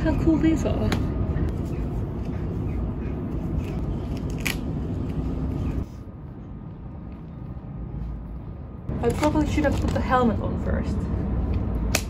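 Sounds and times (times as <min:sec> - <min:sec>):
velcro strap rasping: 0:03.6 - 0:05.3.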